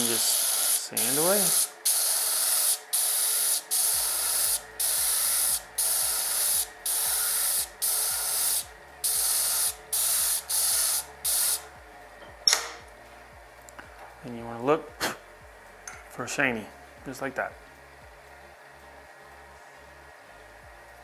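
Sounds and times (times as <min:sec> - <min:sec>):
gritty sanding hiss: 0:00.0 - 0:11.7.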